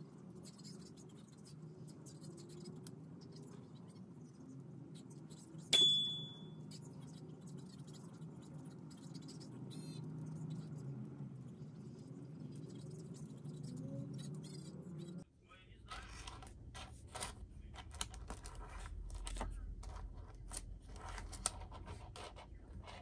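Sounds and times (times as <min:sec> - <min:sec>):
bright chime: 0:05.8 - 0:06.5.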